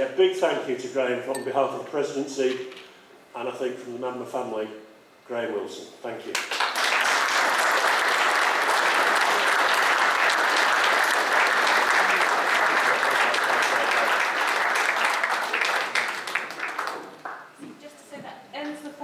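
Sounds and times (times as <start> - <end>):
audience applauding: 6.3 - 17.6.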